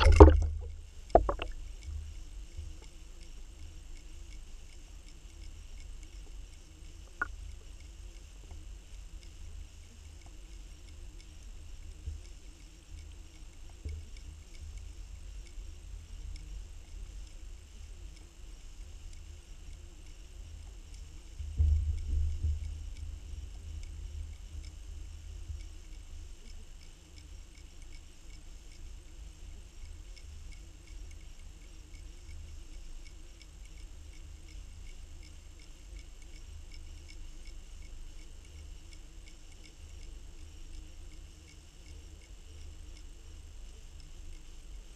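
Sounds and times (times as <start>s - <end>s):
underwater water rumble: 0.0s - 1.6s
faint ticks: 0.0s - 44.9s
high steady hiss: 0.0s - 44.9s.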